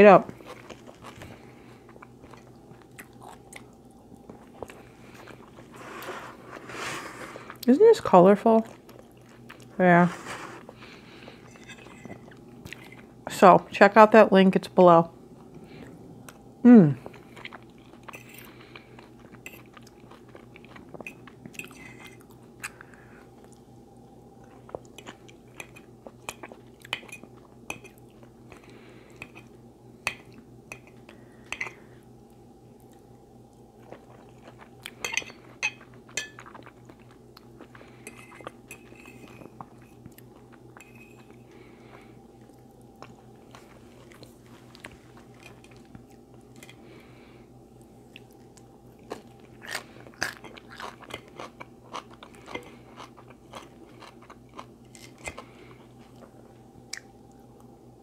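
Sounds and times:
chewing and crunching food: 0:00.2 - 0:13.3, 0:15.4 - 0:57.8.

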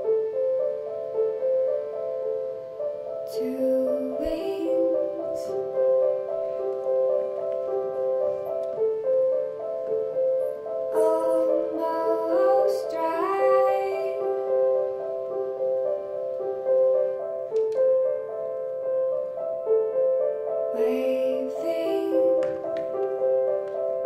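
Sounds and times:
piano music: 0:00.0 - 0:24.0
woman singing: 0:03.2 - 0:05.6, 0:10.9 - 0:14.8, 0:20.7 - 0:22.7.

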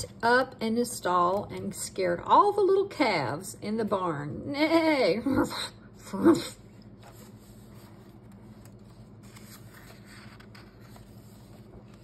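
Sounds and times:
low steady hum: 0:00.0 - 0:12.0
hands rustling book pages: 0:06.8 - 0:12.0.

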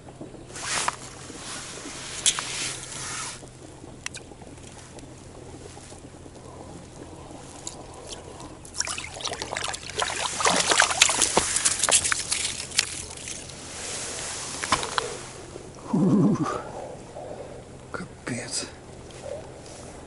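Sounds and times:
fish splashing in water: 0:07.0 - 0:15.6.

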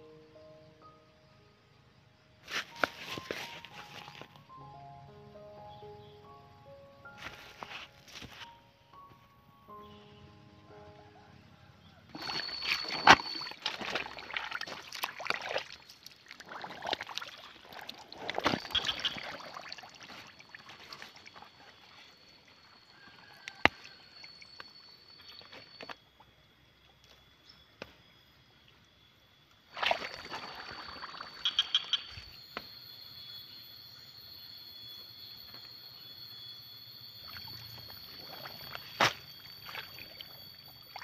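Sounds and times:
thin steady high tone: 0:00.0 - 0:41.0
water sloshing and splashing: 0:12.2 - 0:22.2, 0:29.7 - 0:32.2, 0:37.2 - 0:41.0.

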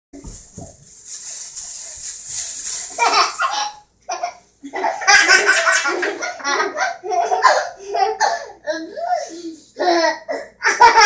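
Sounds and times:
high hiss: 0:00.2 - 0:03.6
young child giggling: 0:03.0 - 0:11.0.

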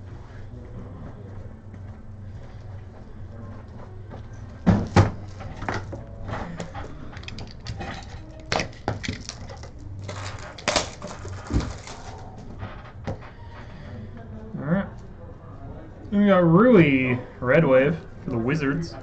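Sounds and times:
steady low hum: 0:00.0 - 0:19.0
cards knocking and clacking: 0:07.2 - 0:12.0.

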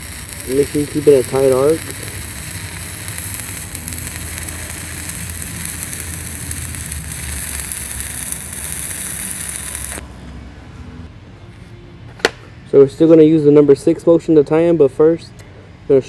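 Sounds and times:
welding arc crackling and hissing: 0:00.0 - 0:10.0.

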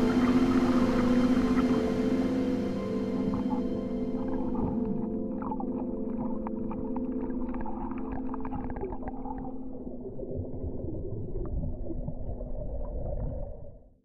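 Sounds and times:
steady low hum: 0:00.0 - 0:06.4
muffled underwater rumble: 0:00.0 - 0:14.0.

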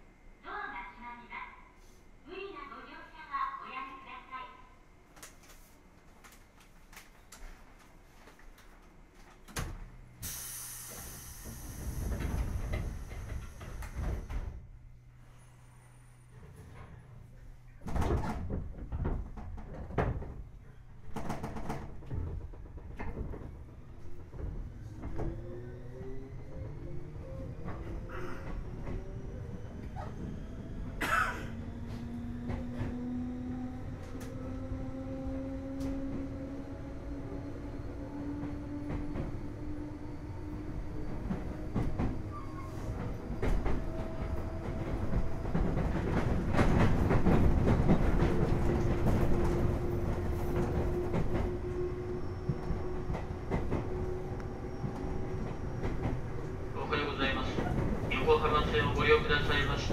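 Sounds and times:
train rumble: 0:06.1 - 0:59.9
compressed air hiss: 0:10.2 - 0:12.0.

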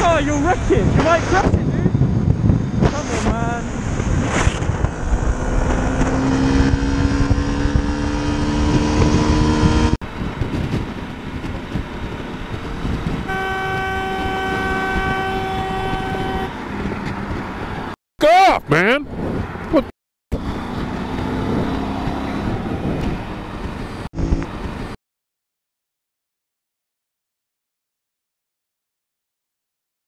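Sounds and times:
wind noise on microphone: 0:00.0 - 0:18.0, 0:19.0 - 0:19.7, 0:20.3 - 0:25.0
road noise: 0:00.0 - 0:25.0
vehicle horn blast: 0:13.2 - 0:16.6.

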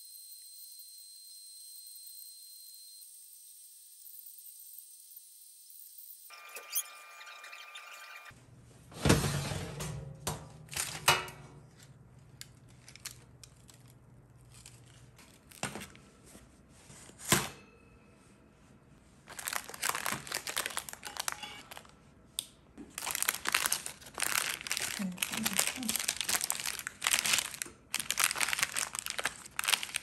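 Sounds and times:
paper liner crinkling and tearing: 0:12.5 - 0:16.0, 0:19.3 - 0:21.9, 0:22.9 - 0:30.0.

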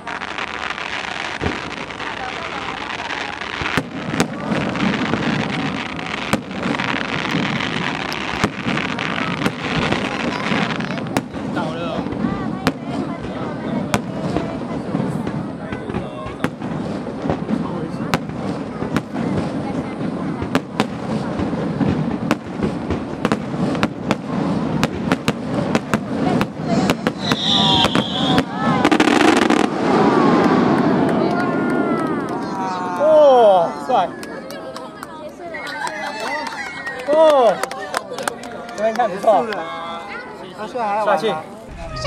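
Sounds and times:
sharp firework bangs: 0:00.0 - 0:32.5, 0:41.7 - 0:42.0
fireworks crackling hiss: 0:00.0 - 0:34.6, 0:39.2 - 0:42.0.

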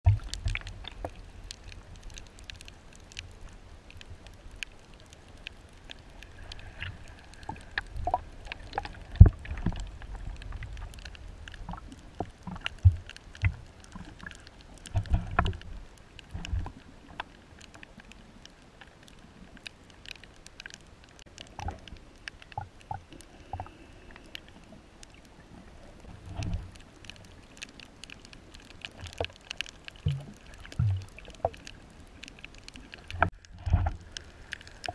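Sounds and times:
moving water thumps and rumbles: 0:00.0 - 0:02.7, 0:06.5 - 0:17.3, 0:26.0 - 0:26.9, 0:28.6 - 0:31.8, 0:32.4 - 0:34.9
underwater crackle of clicks: 0:00.1 - 0:34.9.

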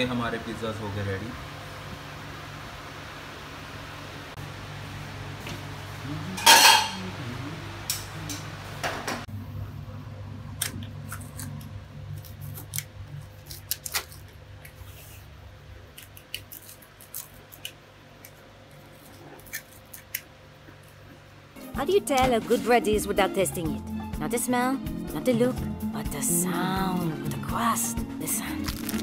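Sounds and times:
pizza cutter crunching crust: 0:28.6 - 0:29.0.

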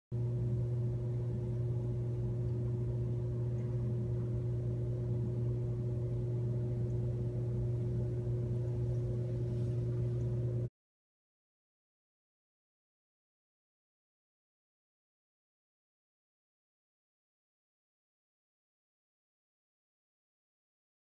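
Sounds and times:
low mechanical hum: 0:00.1 - 0:10.7.

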